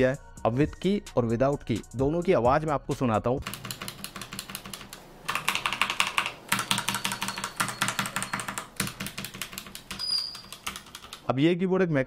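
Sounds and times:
rapid mechanical keyboard typing: 3.4 - 11.3.

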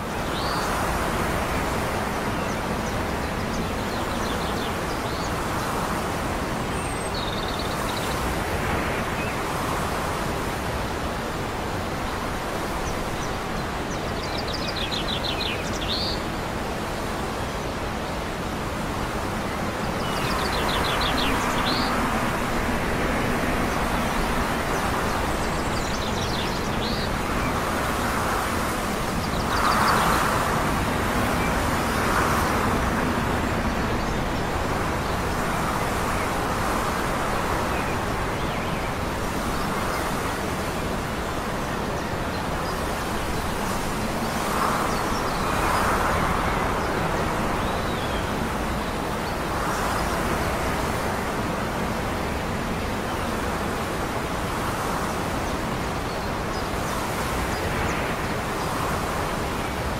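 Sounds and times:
wind: 0.0 - 59.9
small birds chirping: 0.1 - 8.3, 19.4 - 51.2
distant traffic hum: 15.0 - 59.9.

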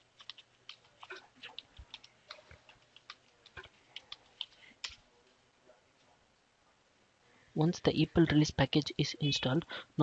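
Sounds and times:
keyboard typing clicks: 0.2 - 5.0.

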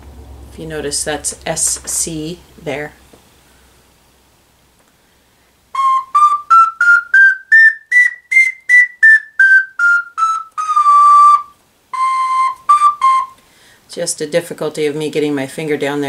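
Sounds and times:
ocarina playing notes: 5.7 - 13.5.

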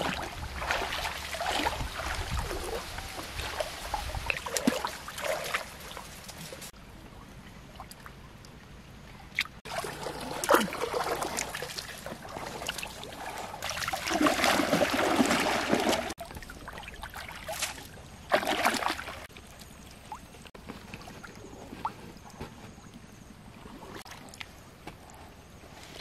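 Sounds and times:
river water splashing: 0.0 - 6.7, 9.4 - 20.4.

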